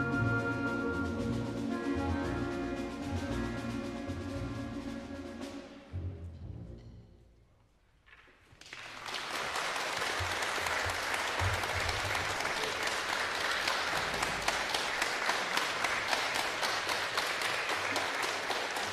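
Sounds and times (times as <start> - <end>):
audience applauding: 8.5 - 18.9.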